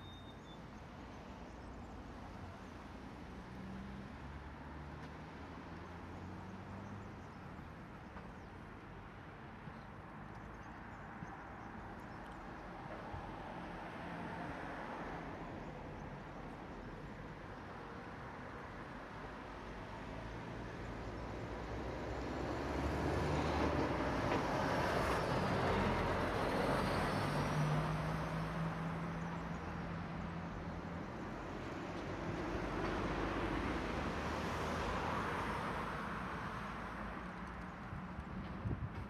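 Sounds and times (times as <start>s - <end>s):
cars driving past: 20.0s - 39.0s.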